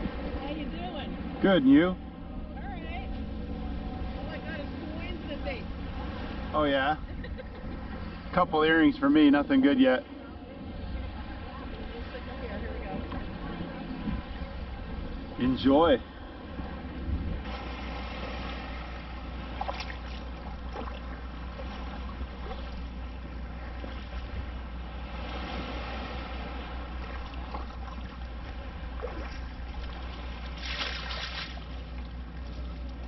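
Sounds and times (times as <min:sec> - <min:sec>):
wind on microphone: 0:10.5 - 0:15.4, 0:16.5 - 0:17.5
water sloshing around legs: 0:17.4 - 0:33.0.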